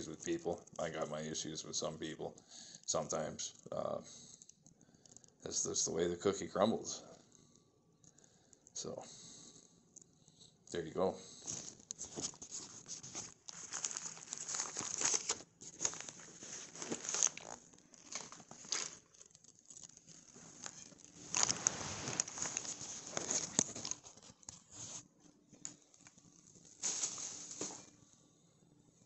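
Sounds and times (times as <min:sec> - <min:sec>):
phone handling rustling: 0:11.5 - 0:24.6.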